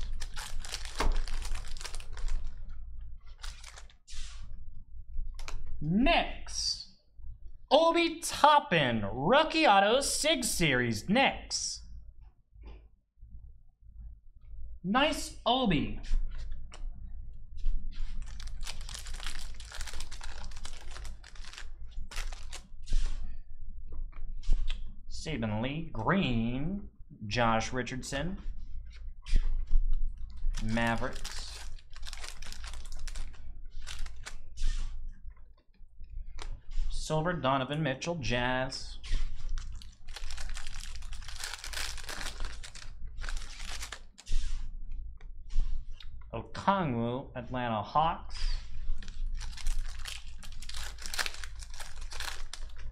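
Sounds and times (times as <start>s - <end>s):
wrapper crinkling and tearing: 0.0s - 2.6s, 3.3s - 4.0s, 18.1s - 22.7s, 30.4s - 34.4s, 39.5s - 44.3s, 49.0s - 52.9s.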